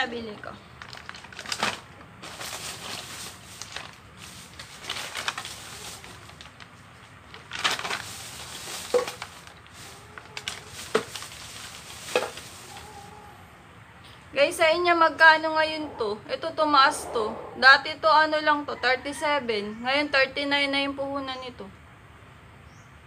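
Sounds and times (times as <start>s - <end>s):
plastic packaging crinkling: 0.7s - 13.2s
items knocking down: 7.5s - 9.5s, 10.2s - 12.8s.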